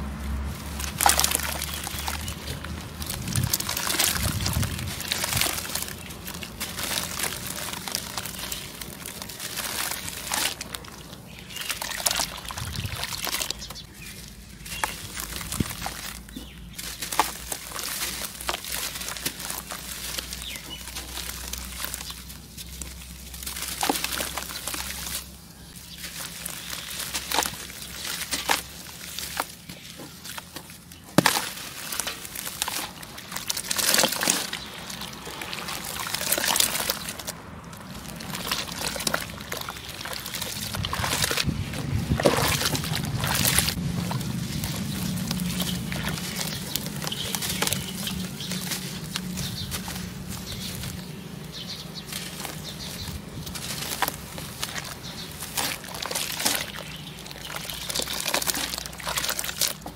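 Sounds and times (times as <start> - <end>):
water sloshing and trickling: 0.0 - 59.9
wet cement crumbs crackling: 0.0 - 59.9.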